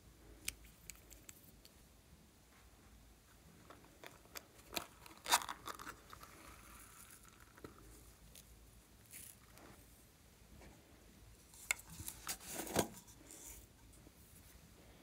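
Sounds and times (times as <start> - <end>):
crackling bead slime: 4.0 - 9.7.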